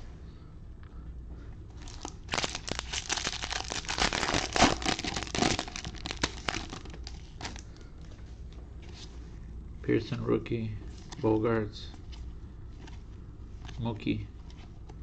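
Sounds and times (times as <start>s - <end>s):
wrapper tearing and crinkling: 1.8s - 7.6s.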